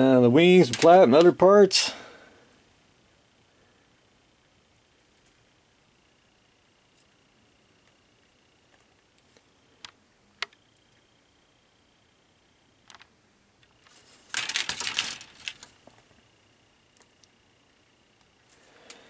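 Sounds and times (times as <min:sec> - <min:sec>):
plastic sprues clicking and rattling: 0:00.6 - 0:01.3, 0:13.8 - 0:15.8.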